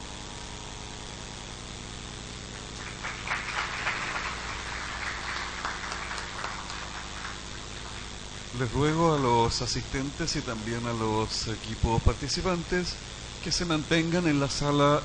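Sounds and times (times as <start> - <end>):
low steady hum: 0.0 - 15.0
audience clapping: 2.5 - 9.7.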